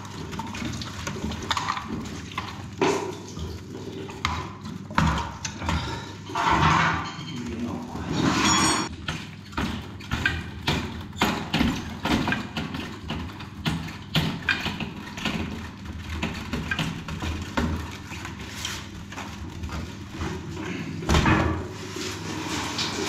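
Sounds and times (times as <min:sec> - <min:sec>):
knocks clunks and scrapes on heater: 0:00.6 - 0:07.4.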